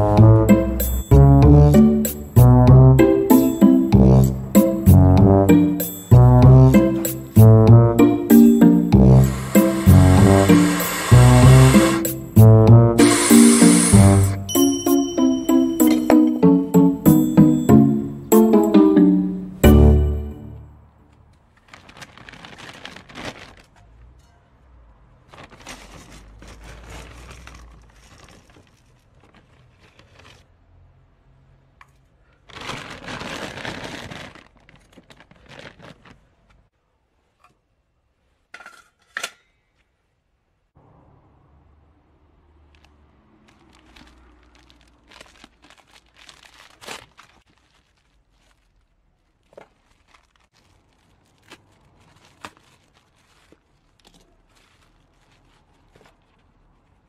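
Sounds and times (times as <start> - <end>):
scoop digging into wood pellets: 8.9 - 14.4
plastic sack crinkling: 21.5 - 23.8, 25.3 - 30.4, 32.4 - 36.6, 42.8 - 57.0.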